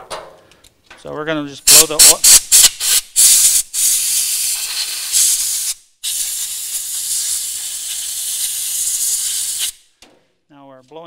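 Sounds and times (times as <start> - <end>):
compressed air blow gun hissing: 1.7 - 9.9.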